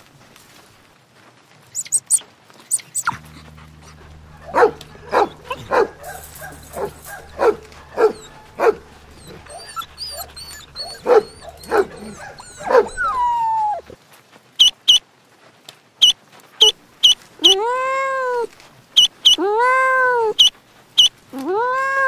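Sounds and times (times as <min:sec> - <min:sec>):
faint high chirps: 0:01.8 - 0:13.8
dogs barking: 0:01.8 - 0:14.0.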